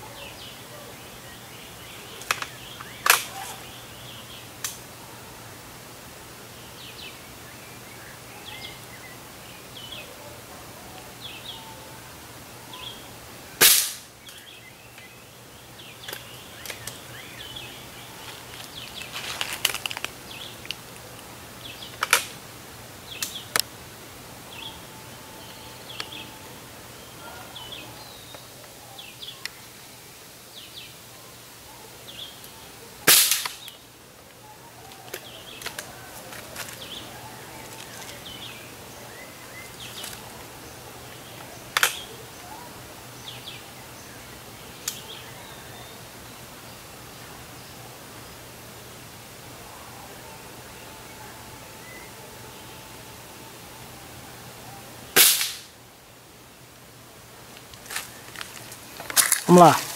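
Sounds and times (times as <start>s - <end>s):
birds chirping: 0.0s - 59.9s
air rifle shot crack: 13.6s - 14.1s, 33.1s - 33.7s, 55.2s - 55.7s.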